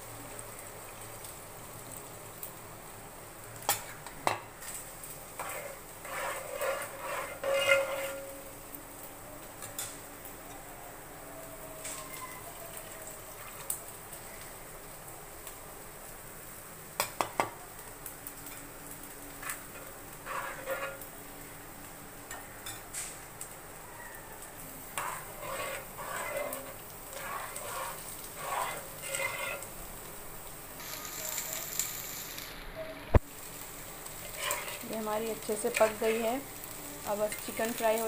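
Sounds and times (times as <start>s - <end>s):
vegetables sizzling in a pan: 0.0s - 38.0s
spoon stirring and scraping pan: 3.6s - 8.6s, 9.6s - 10.6s, 11.8s - 13.8s, 18.4s - 21.2s, 24.8s - 30.2s, 33.4s - 38.0s.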